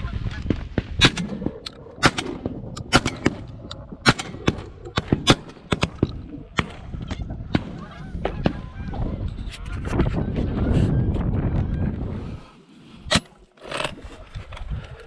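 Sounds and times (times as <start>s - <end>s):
shotgun shots: 2.0s - 3.4s.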